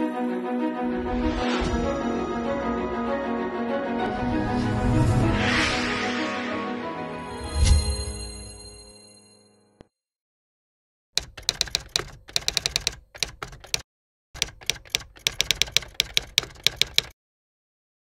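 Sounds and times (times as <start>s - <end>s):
rapid keyboard typing: 11.2s - 13.8s, 14.4s - 17.2s.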